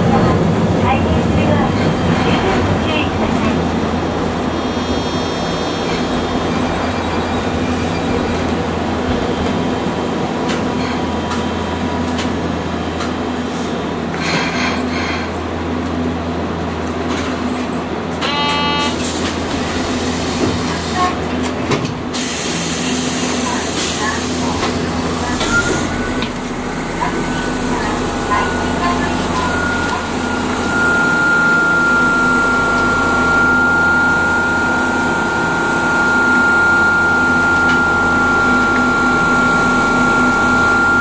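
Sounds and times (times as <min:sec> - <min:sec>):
tram motors and wheels rumbling: 0:00.0 - 0:41.0
short ringing tone: 0:25.4 - 0:41.0.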